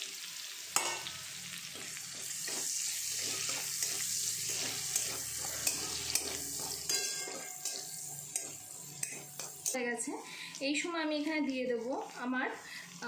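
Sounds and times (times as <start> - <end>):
garlic sizzling in oil: 0.0 - 13.0
metal spatula scraping pan: 0.8 - 9.8.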